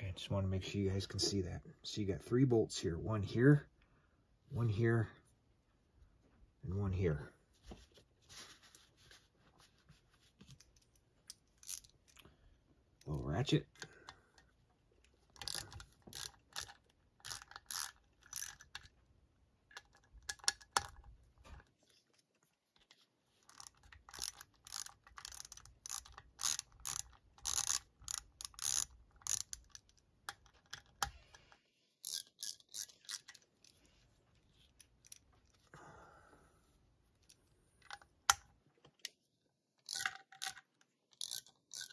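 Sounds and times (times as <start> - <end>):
socket ratchet clicking: 15.4 - 18.9, 23.5 - 31.2, 39.8 - 41.9.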